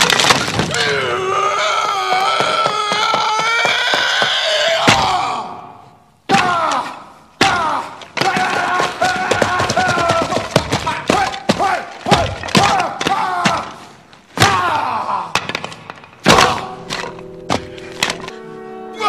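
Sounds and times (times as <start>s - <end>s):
steady held notes: 16.6s - 19.0s.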